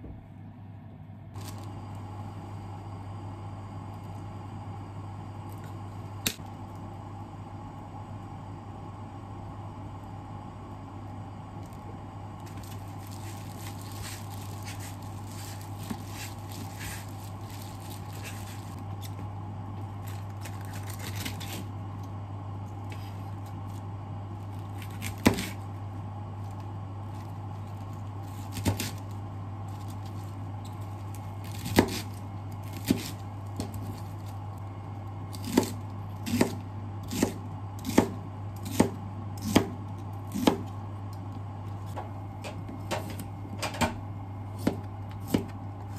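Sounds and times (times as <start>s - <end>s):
steady low hum: 0.0s - 45.9s
knife chopping on cutting board: 31.5s - 32.1s, 35.4s - 40.7s, 44.6s - 45.6s.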